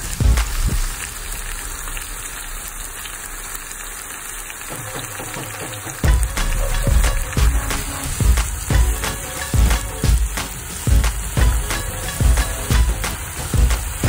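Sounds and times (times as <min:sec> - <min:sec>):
background music with heavy beat: 0:00.0 - 0:01.0, 0:04.7 - 0:14.0
food frying in oil: 0:00.0 - 0:14.0.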